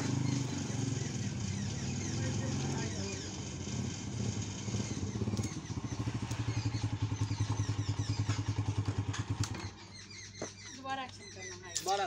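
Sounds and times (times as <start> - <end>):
motorcycle engine putter: 4.3 - 10.7.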